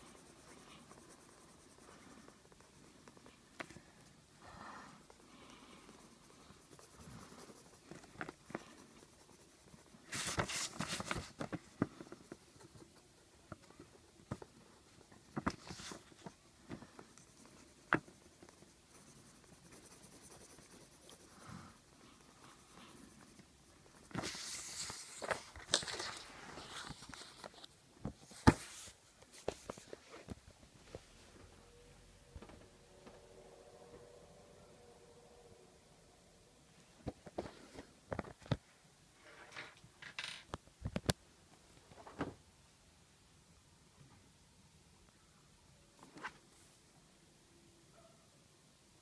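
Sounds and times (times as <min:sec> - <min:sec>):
coloring strokes scratching paper: 0:00.0 - 0:27.7.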